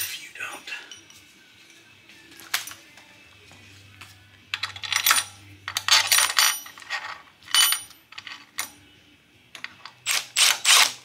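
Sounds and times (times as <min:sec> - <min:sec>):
steel parts clinking together: 0:04.6 - 0:08.9.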